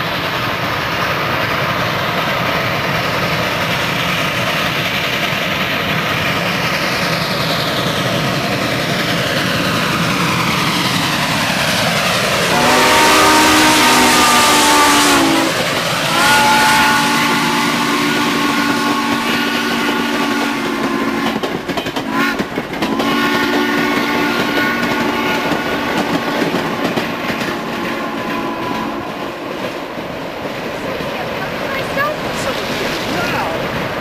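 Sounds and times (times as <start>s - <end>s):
train rolling by: 0.0s - 34.0s
steam whistle blasts: 12.5s - 21.4s, 22.1s - 26.4s.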